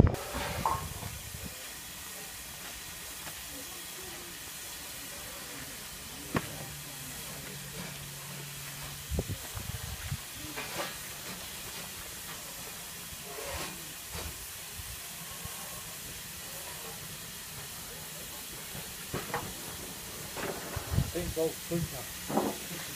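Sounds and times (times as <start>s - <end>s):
steam locomotive hissing: 0.0s - 22.9s.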